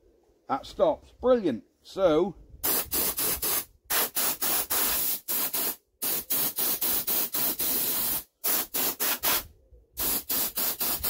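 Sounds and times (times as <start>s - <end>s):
short hissing air bursts: 2.6s - 11.0s.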